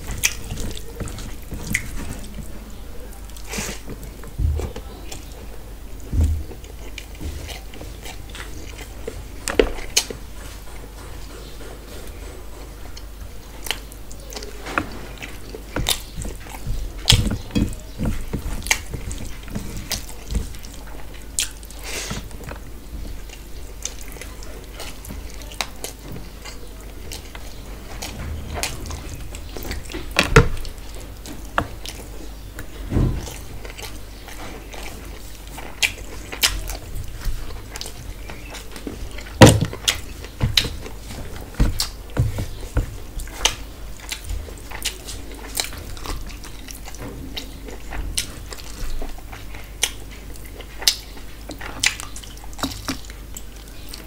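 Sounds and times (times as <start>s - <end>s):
faint low hum: 0.0s - 54.0s
wet chewing and lip smacks: 43.2s - 54.0s.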